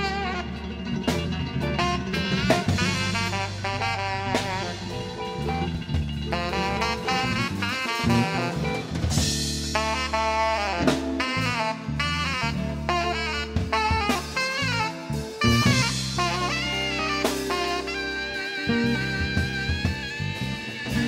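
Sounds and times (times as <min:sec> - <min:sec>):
blues band playing: 0:00.0 - 0:21.0
drum hits: 0:01.1 - 0:10.2.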